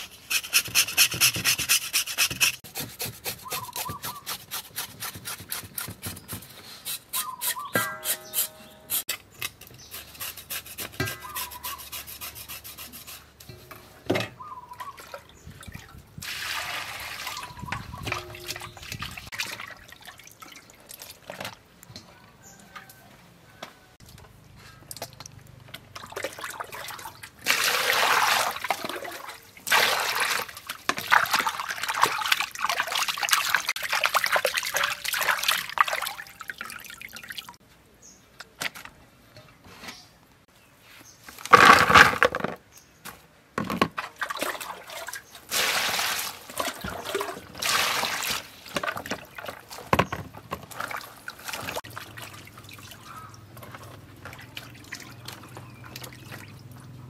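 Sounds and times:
water dripping and trickling: 14.8s - 22.0s, 24.8s - 37.6s, 50.6s - 57.0s
water pouring into bowls: 16.2s - 21.3s, 50.8s - 57.0s.

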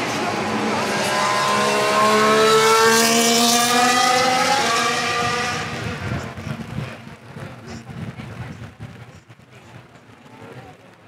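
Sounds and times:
racing car engine accelerating: 0.0s - 6.7s.

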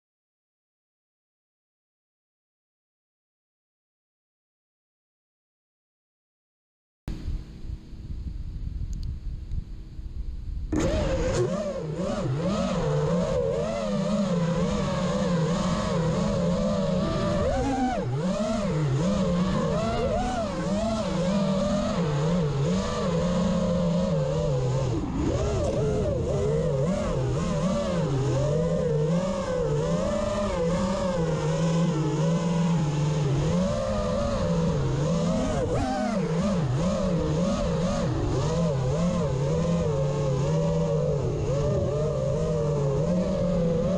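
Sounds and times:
engine running: 7.1s - 43.9s.

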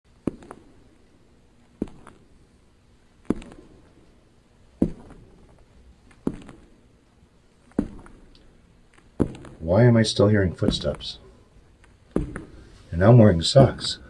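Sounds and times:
heavy footsteps on hard floor: 4.7s - 6.7s, 7.7s - 8.2s, 9.1s - 9.6s, 12.1s - 12.8s.

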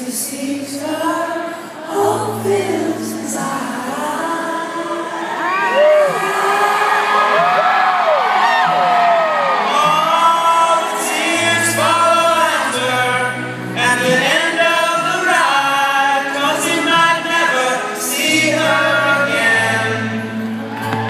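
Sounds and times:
acoustic guitar: 0.0s - 21.0s
man singing long notes: 9.6s - 20.4s.

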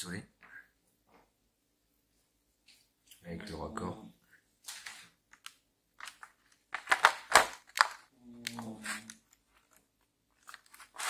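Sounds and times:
plastic tray clicks and clattering: 5.4s - 8.0s.

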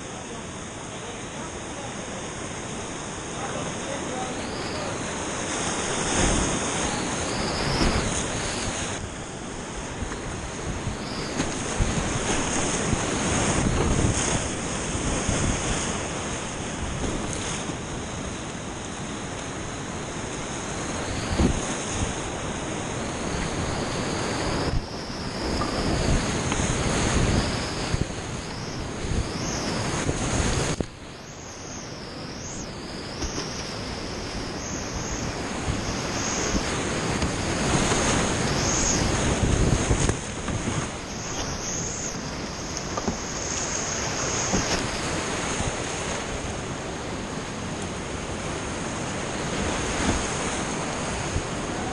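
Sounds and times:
whitewater rushing: 0.0s - 51.9s
wind buffeting microphone: 4.1s - 47.5s, 48.1s - 51.9s.

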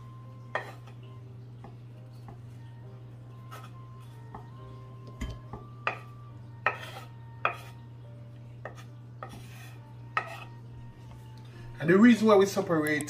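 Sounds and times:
knife scraping wooden cutting board: 6.6s - 7.8s, 8.6s - 10.6s.

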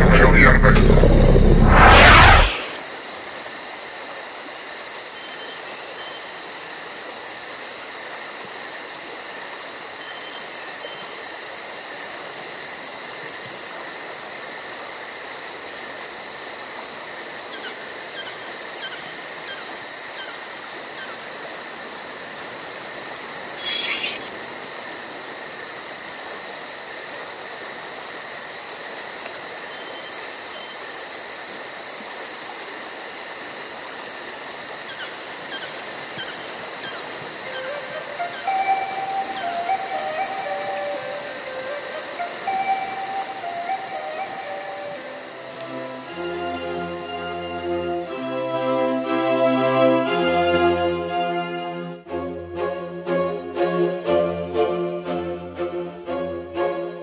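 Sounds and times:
short high hiss: 0.0s - 2.9s, 23.5s - 24.4s
insects chirring: 2.5s - 49.0s
faint chirps: 23.5s - 24.4s.

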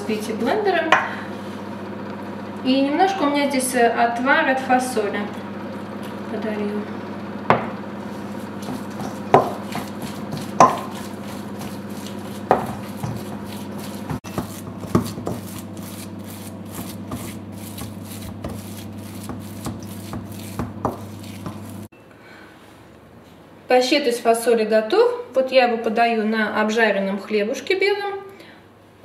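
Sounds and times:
spoon scraping paste in a bowl: 8.0s - 21.9s.

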